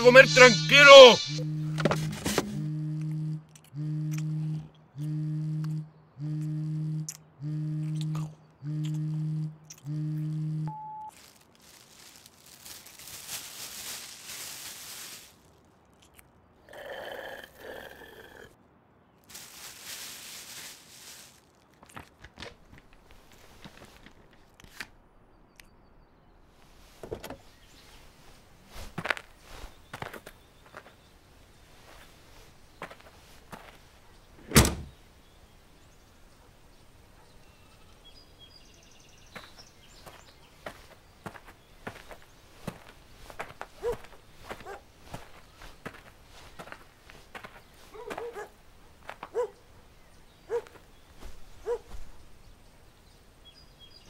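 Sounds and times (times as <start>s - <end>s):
chewing: 3.4s - 10.1s, 15.9s - 18.5s
paper wrapper crumpling: 11.1s - 15.7s, 19.2s - 23.1s
footsteps on gravel: 28.0s - 31.0s, 31.8s - 33.8s, 39.3s - 49.5s
faint high chirping calls: 34.0s - 42.2s.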